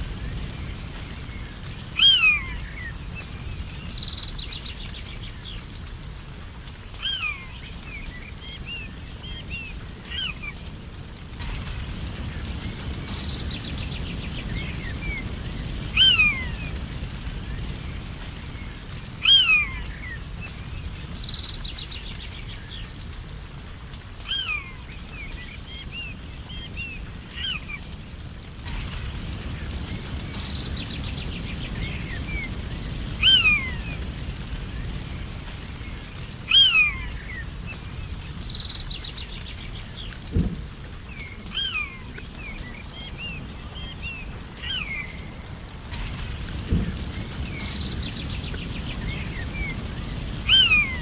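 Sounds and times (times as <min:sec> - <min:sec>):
birds chattering: 0:00.0 - 0:23.2, 0:24.3 - 0:51.0
bird trilling: 0:50.5 - 0:51.0.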